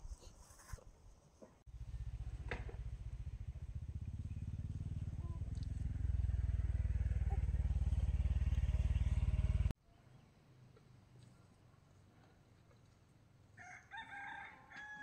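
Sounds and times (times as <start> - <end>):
small engine running: 1.7 - 9.7.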